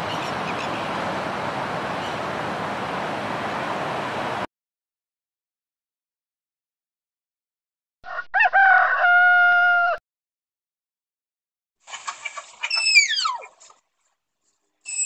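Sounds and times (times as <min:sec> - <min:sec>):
rooster crowing: 0:08.0 - 0:10.0.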